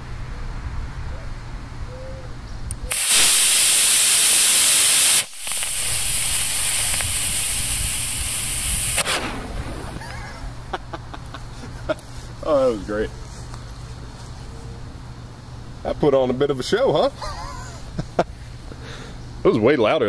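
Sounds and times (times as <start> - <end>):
quiet hiss of smoking charge: 2.7 - 14.4
short pop of ejection charge: 2.9 - 10.1
rocket motor hissing: 2.9 - 10.3.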